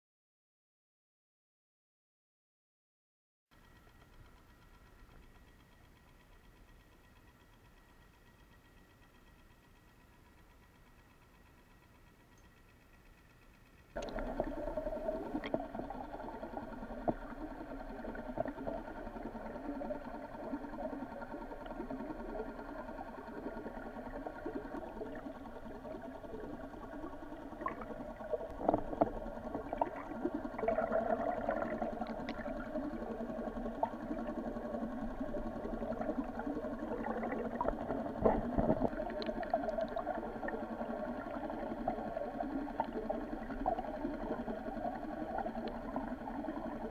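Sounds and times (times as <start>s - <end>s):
underwater rushing and gurgling: 14.0s - 46.9s.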